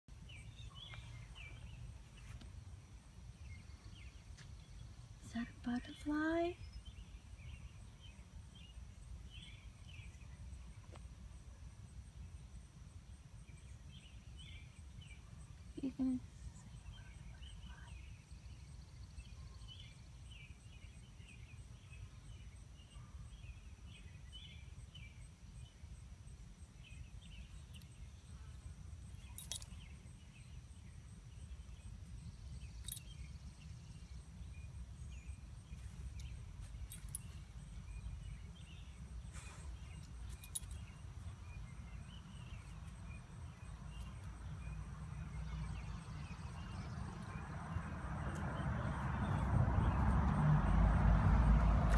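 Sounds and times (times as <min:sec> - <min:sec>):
faint chirping: 0:26.7 - 0:47.6.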